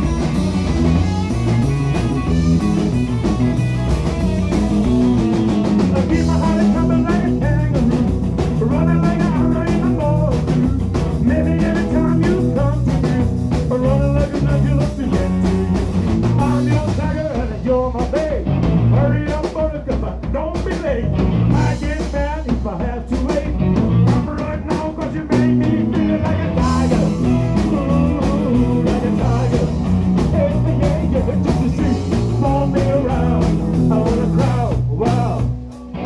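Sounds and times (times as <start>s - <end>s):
drum kit: 0.0s - 36.0s
electric bass: 0.0s - 36.0s
electric guitar: 0.0s - 36.0s
person singing: 5.9s - 20.7s, 21.5s - 35.6s.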